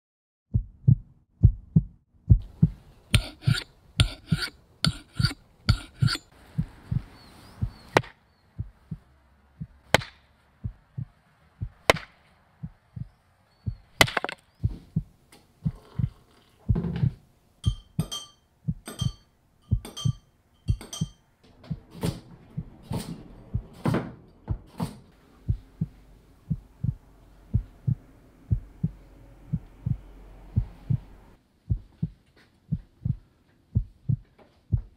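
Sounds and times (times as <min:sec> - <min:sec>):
heartbeat-like low thump: 0:00.5 - 0:02.8, 0:06.5 - 0:08.0, 0:08.6 - 0:09.9, 0:10.6 - 0:11.9, 0:12.6 - 0:13.9, 0:14.6 - 0:16.1, 0:16.7 - 0:17.2, 0:22.5 - 0:23.8, 0:25.4 - 0:34.9
teacup and spoon clinking: 0:17.6 - 0:21.2.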